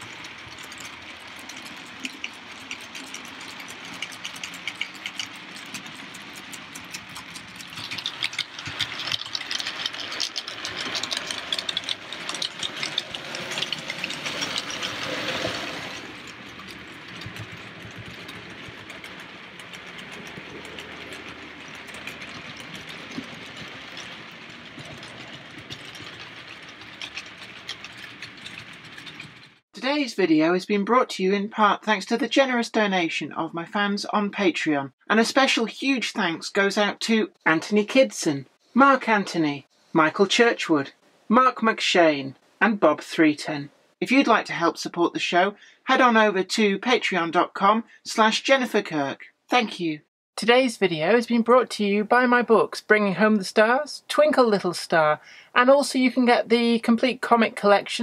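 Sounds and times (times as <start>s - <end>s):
model train wheels rattling: 0.0s - 29.6s.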